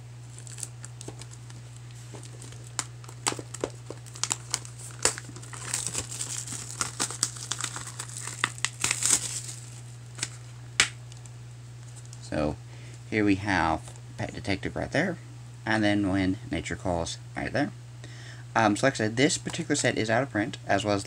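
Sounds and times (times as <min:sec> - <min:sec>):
plastic shrink-wrap crinkling: 0:00.2 - 0:12.2.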